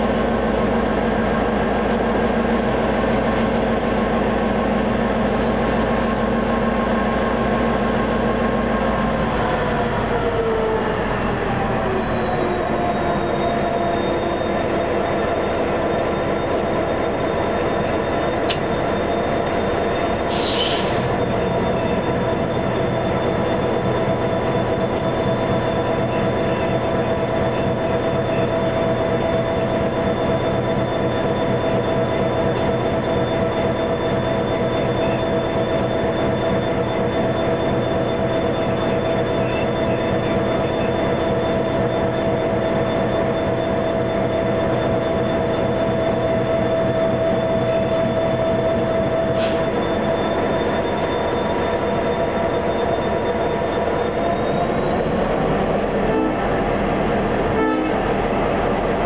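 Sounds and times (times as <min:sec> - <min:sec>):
diesel locomotive whine and rumble: 0:00.0 - 0:59.0.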